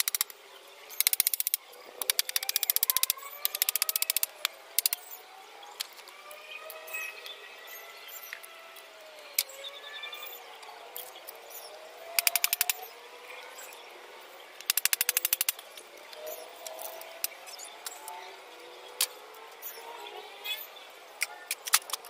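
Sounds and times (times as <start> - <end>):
sharp clicks: 0.0 - 0.3, 1.0 - 5.2, 12.2 - 12.9, 14.6 - 18.1.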